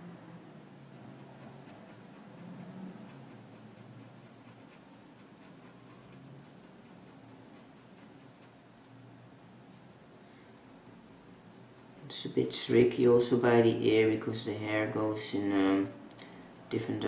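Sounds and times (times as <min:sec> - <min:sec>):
pen scratching on paper: 0:00.9 - 0:08.6, 0:10.6 - 0:12.6.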